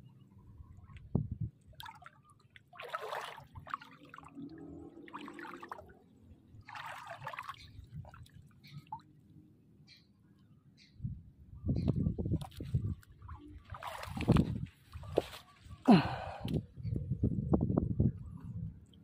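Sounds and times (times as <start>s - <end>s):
water splashing and trickling: 0.3s - 9.4s, 12.3s - 16.3s.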